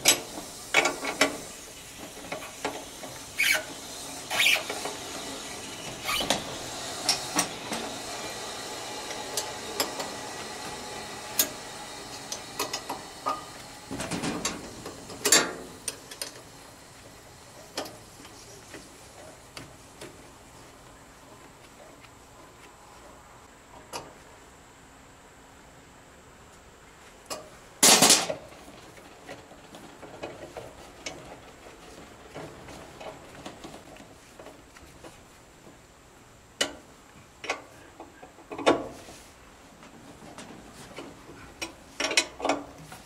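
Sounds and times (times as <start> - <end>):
refrigerant hissing: 0.0 - 20.8.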